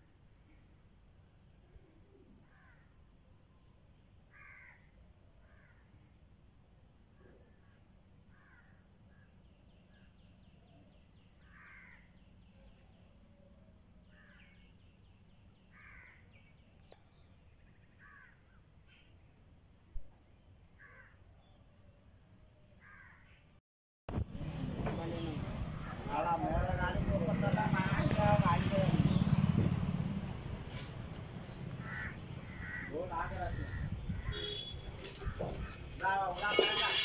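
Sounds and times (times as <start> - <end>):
faint bird calls: 31.7 - 35.9.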